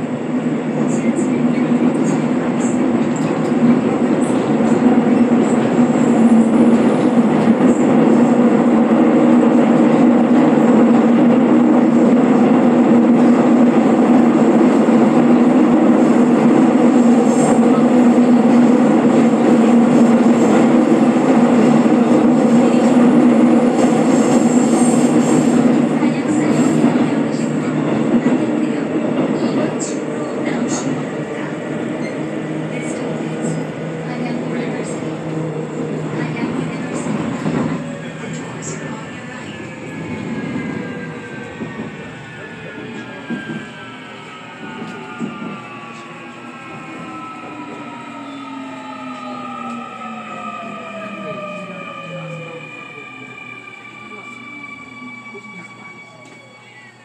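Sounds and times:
train wheels rumbling on rails: 0:00.0 - 0:56.7
low train hum: 0:00.0 - 0:57.0.

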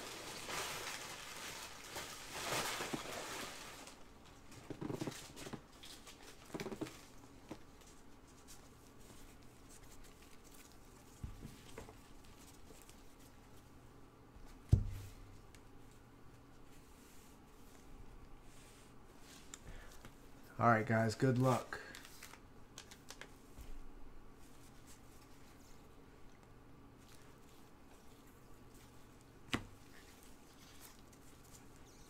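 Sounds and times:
cards rustling while shuffled: 0:04.7 - 0:13.6, 0:21.2 - 0:23.8, 0:27.0 - 0:32.0.

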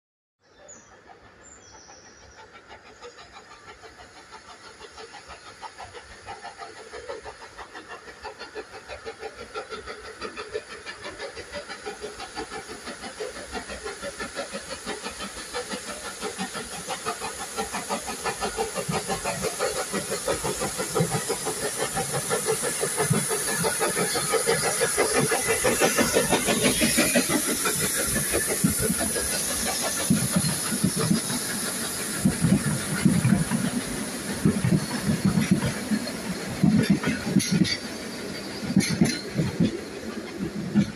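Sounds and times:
steam locomotive chuffing: 0:00.5 - 0:40.9
steam hissing: 0:00.6 - 0:40.9
train carriages passing: 0:00.9 - 0:40.9.

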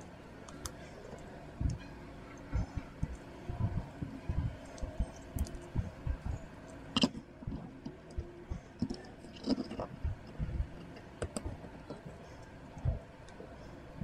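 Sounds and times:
plastic parts knocking and rubbing: 0:07.0 - 0:12.2.

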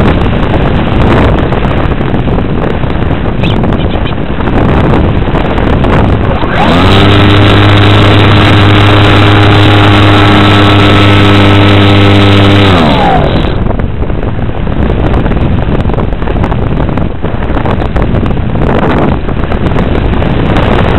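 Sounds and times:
wind rush: 0:00.0 - 0:20.9
model airplane motor drone: 0:05.8 - 0:13.8.

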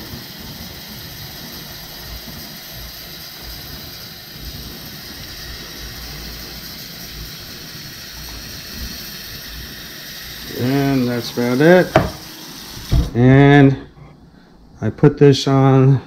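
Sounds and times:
water running into a saucepan: 0:00.0 - 0:13.2.

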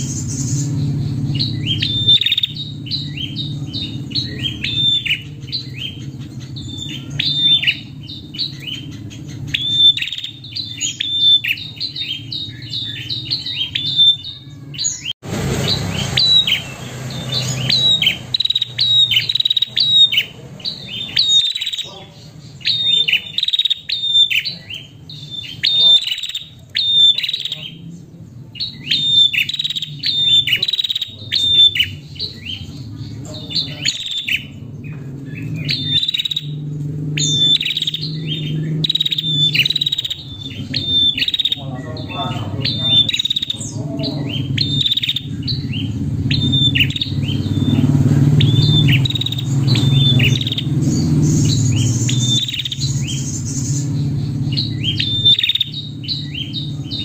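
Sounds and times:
steady low hum: 0:00.0 - 0:14.4
bird chirping: 0:00.0 - 0:57.0.

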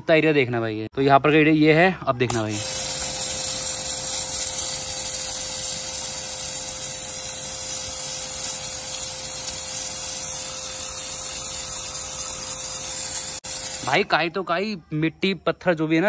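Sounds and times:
high-pressure water jet hissing: 0:02.3 - 0:14.1
pressure washer pump humming: 0:02.3 - 0:14.2.

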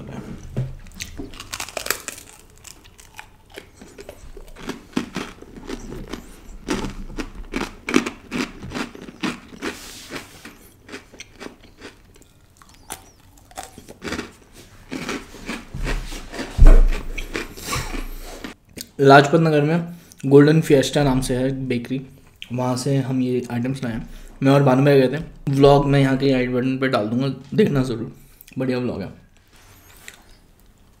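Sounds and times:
person chewing crunchy food: 0:00.8 - 0:18.8.

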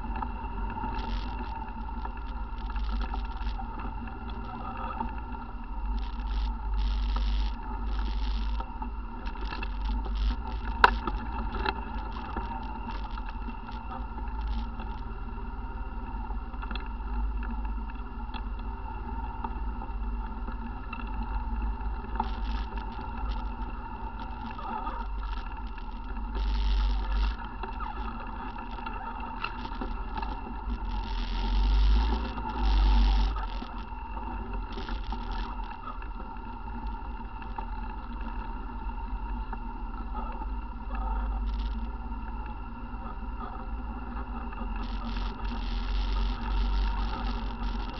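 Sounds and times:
rumbling bursts on microphone: 0:20.7 - 0:39.1, 0:40.0 - 0:47.9.

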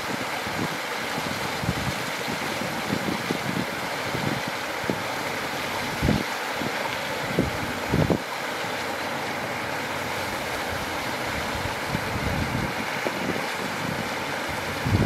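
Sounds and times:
wind buffeting microphone: 0:00.0 - 0:05.0, 0:05.8 - 0:08.2, 0:10.6 - 0:15.0
stream cascading over rocks: 0:00.0 - 0:15.0.

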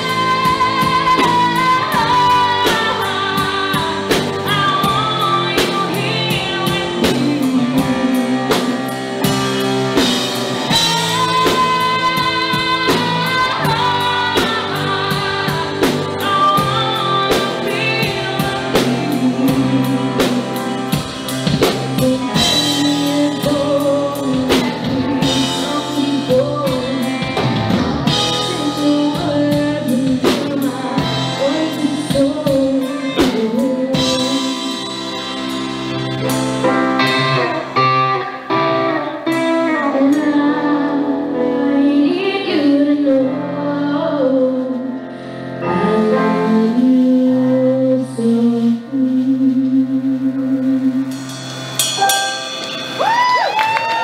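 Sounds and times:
woman singing a ballad: 0:00.0 - 0:35.4, 0:37.0 - 0:51.2
drum kit beat: 0:00.0 - 0:38.1, 0:50.7 - 0:54.0
guitar: 0:00.0 - 0:54.0
stage piano: 0:00.0 - 0:54.0.

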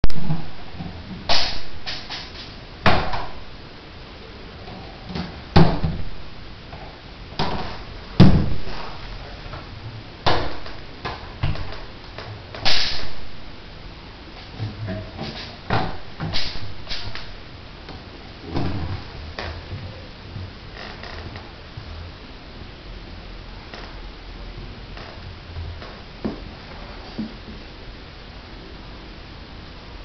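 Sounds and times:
ball rolling rumble: 0:17.9 - 0:22.1.

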